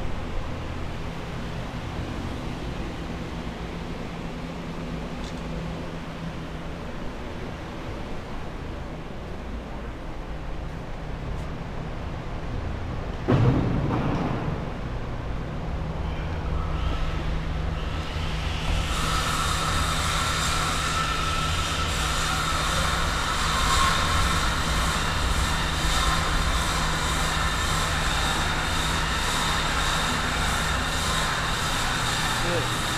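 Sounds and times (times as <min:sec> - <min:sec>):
machinery droning: 0:00.0 - 0:32.9
high machine whine: 0:14.3 - 0:32.9.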